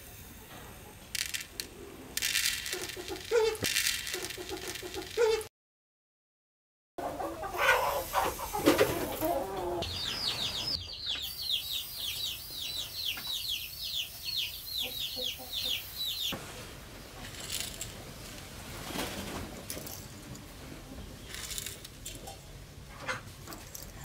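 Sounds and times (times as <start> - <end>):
chicks peeping: 2.7 - 5.5, 7.0 - 16.4
hen clucking: 2.7 - 5.5, 7.0 - 16.3.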